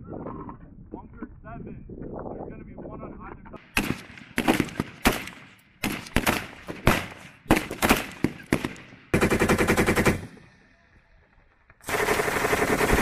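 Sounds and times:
rifle shots: 3.6 - 10.4, 11.8 - 13.0
machine-gun burst: 3.8 - 10.4, 11.8 - 13.0.

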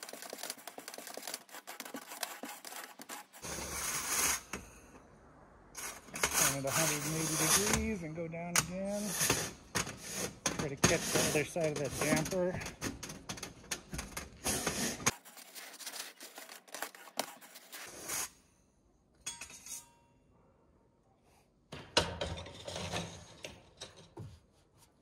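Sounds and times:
brush scraping inside metal flue: 0.0 - 4.6, 5.8 - 18.3.

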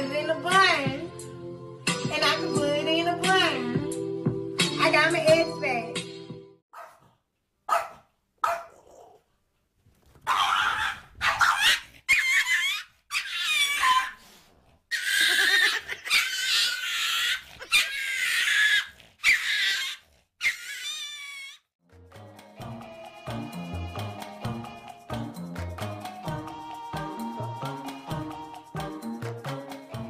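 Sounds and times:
dog crying out: 10.2 - 14.2, 14.9 - 21.7.

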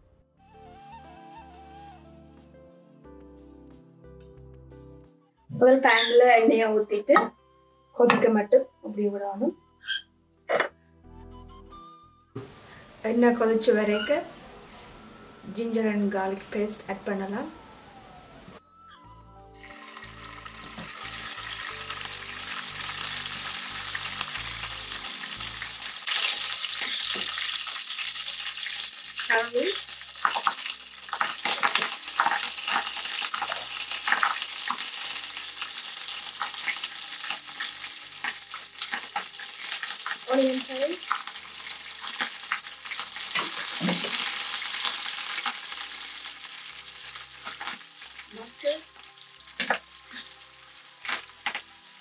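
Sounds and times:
paste sizzling in hot oil: 19.6 - 52.0.

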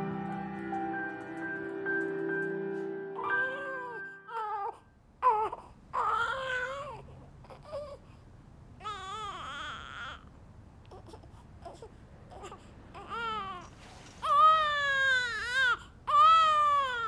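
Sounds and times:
baby crying: 3.2 - 8.0, 8.8 - 10.3, 10.9 - 17.0.

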